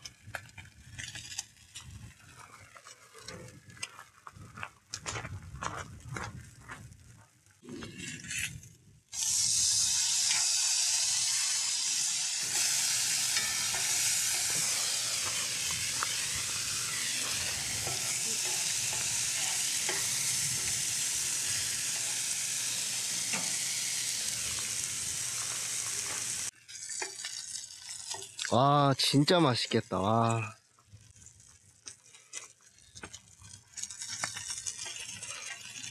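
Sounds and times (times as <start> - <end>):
bacon sizzling in a skillet: 9.2 - 28.6, 30.4 - 35.9.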